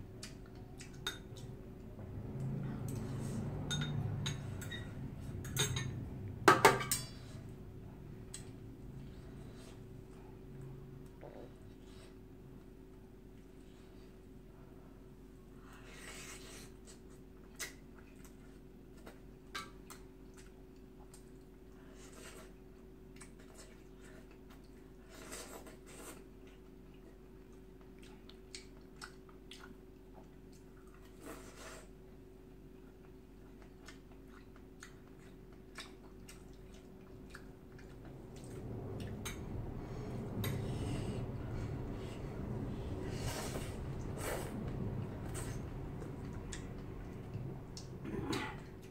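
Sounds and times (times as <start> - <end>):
steady low hum: 0.0 - 48.9
low rumbling noise: 1.5 - 6.5, 37.1 - 48.9
metal spoon clinking on bowl: 3.7 - 6.0
slurping and chewing: 15.6 - 48.9
eating sounds: 15.8 - 32.0, 32.6 - 48.9.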